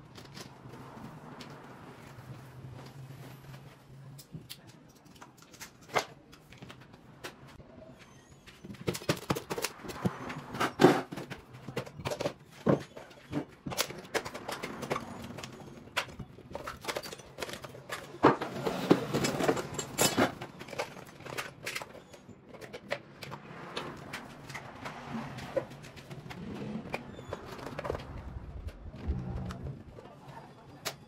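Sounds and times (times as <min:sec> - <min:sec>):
hand tools clicking and clattering: 0:08.4 - 0:28.9.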